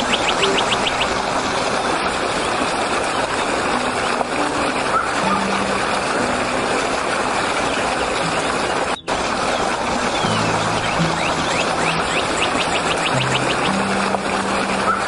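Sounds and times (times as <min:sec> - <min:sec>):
stream rushing over rocks: 0:00.0 - 0:15.0.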